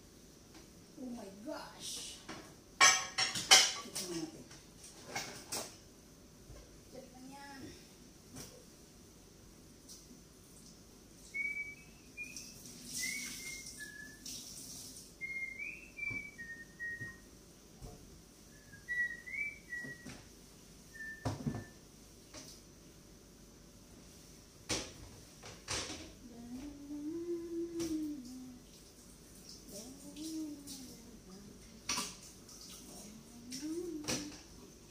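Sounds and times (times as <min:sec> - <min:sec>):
person whistling a tune: 0:11.4 - 0:14.2, 0:15.2 - 0:17.2, 0:18.5 - 0:20.1, 0:21.0 - 0:21.7.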